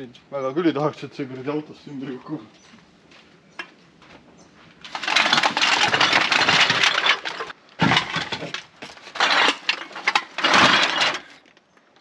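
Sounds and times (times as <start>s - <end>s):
bin bags of bottles and cans rattling: 4.8s - 11.5s.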